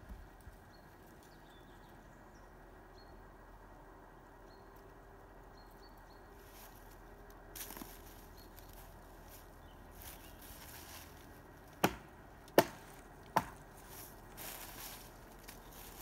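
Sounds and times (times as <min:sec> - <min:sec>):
axe chopping wood: 0:11.8 - 0:13.6.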